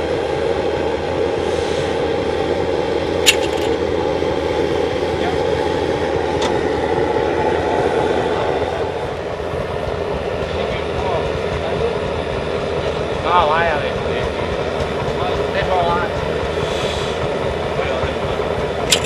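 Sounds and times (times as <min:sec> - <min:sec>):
machinery running: 0:03.1 - 0:07.4, 0:08.4 - 0:19.0.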